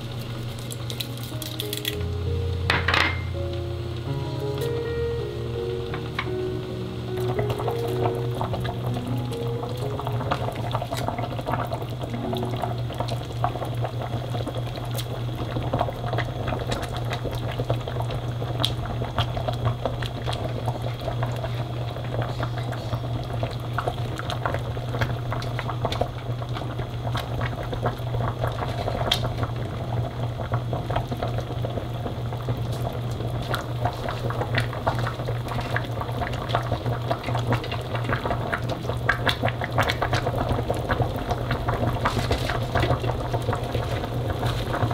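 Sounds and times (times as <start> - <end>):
broth boiling and bubbling: 0.0 - 4.6, 5.2 - 44.9
low hum: 0.6 - 14.8.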